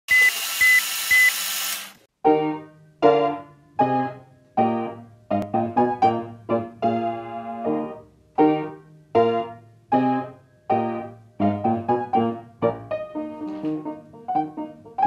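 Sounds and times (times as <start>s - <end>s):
short high beep: 0.1s - 1.4s
piano chords: 2.2s - 15.0s.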